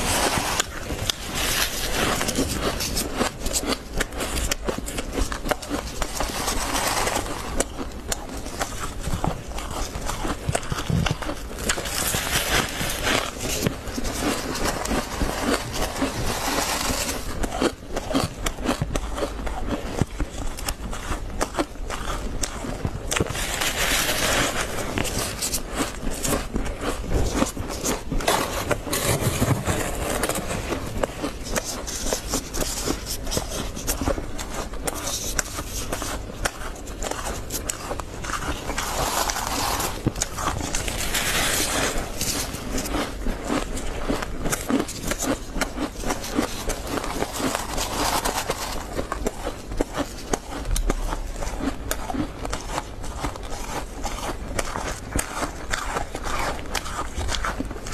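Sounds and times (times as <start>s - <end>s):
plastic scoop scraping frost: 0.0s - 17.7s, 23.1s - 43.7s, 44.5s - 50.3s
frost crunching as chewed: 0.0s - 57.9s.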